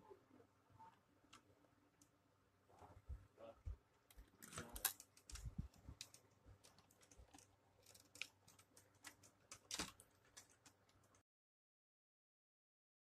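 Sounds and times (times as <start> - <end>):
faint small clicks and knocks: 4.1 - 11.2.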